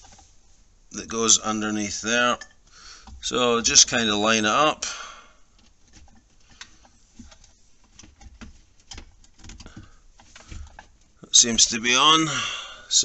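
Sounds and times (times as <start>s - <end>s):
small plastic clicks and scrapes: 5.5s - 11.2s.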